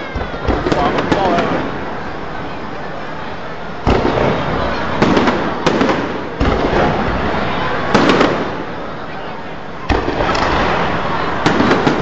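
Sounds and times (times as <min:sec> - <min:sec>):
firework shells bursting: 0:09.9 - 0:12.0.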